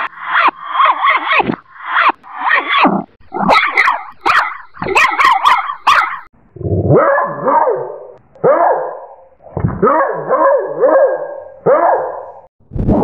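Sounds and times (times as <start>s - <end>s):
small dog barks reversed: 0.0s - 6.3s, 6.9s - 9.1s
slowed drawn-out bark: 0.0s - 12.5s.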